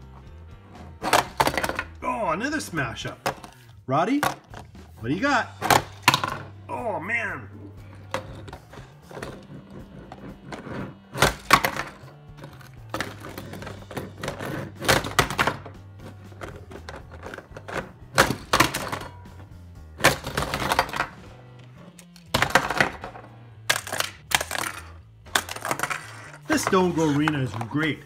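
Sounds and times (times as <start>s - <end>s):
background music: 0.0s - 28.0s
toy trucks clattering on plastic: 11.2s - 19.2s, 22.2s - 27.8s.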